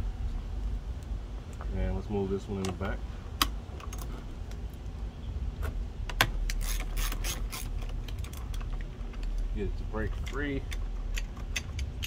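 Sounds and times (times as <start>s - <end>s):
socket ratchet clicking: 6.2s - 9.4s.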